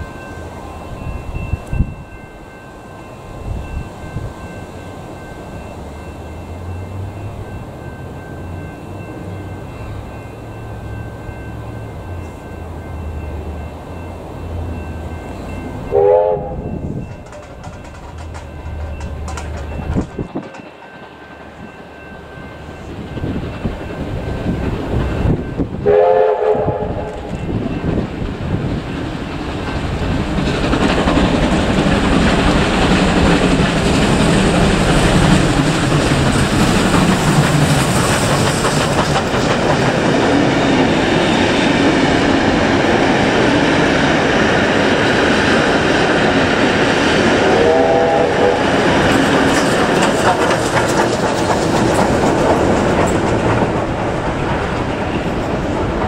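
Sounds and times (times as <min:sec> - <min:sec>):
train wheels clattering: 0:14.7 - 0:56.0
train horn blast: 0:15.9 - 0:16.8, 0:25.8 - 0:27.3, 0:47.4 - 0:49.0.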